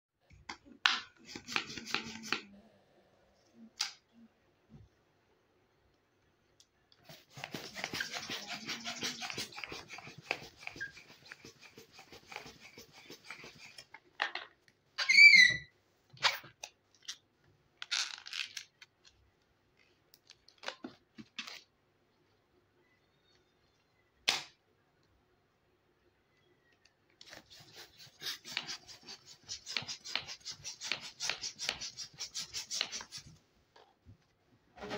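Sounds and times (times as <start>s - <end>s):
rubber squeak: 7.5s - 13.5s, 15.0s - 15.7s.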